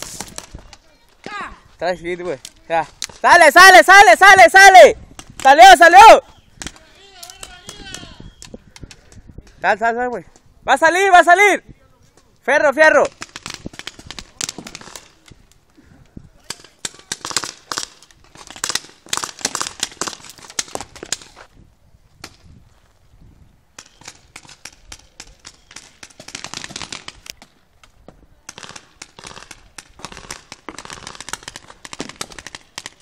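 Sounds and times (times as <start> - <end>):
paintball markers firing: 6.6 - 9.2, 13.1 - 15.5, 16.4 - 21.4, 23.8 - 33.0.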